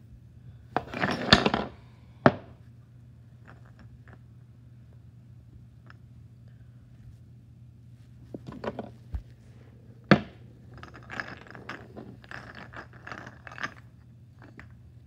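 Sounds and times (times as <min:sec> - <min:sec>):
low hum: 0:04.5 - 0:15.0.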